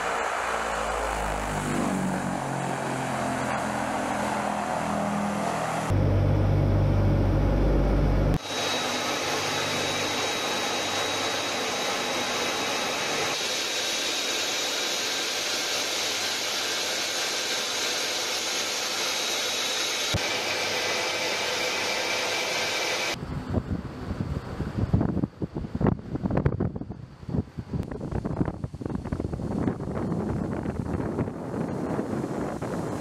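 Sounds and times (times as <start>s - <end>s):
turboprop engines droning: 0.0s - 24.1s
rushing hiss with high whine: 8.4s - 23.2s.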